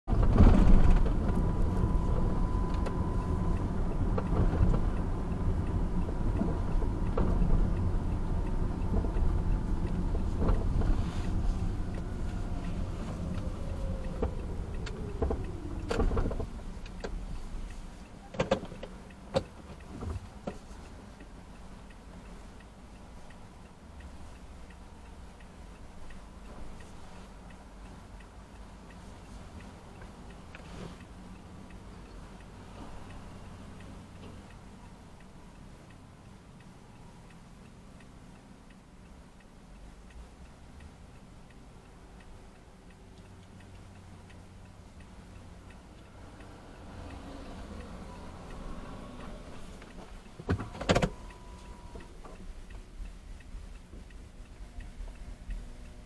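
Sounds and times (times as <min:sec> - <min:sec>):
car engine and road noise: 0:00.0 - 0:56.0.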